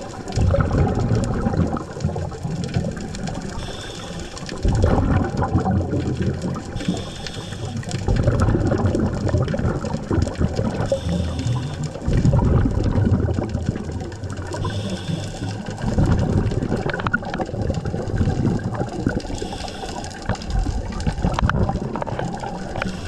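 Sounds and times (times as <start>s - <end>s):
exhaled bubbles rumbling: 0.0s - 23.0s
regulator hiss: 3.5s - 4.6s, 6.7s - 8.1s, 10.9s - 12.0s, 14.6s - 15.8s, 19.3s - 20.3s.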